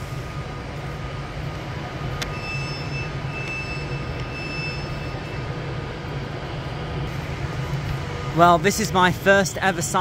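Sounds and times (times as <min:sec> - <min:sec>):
electric train humming: 0:00.0 - 0:10.0.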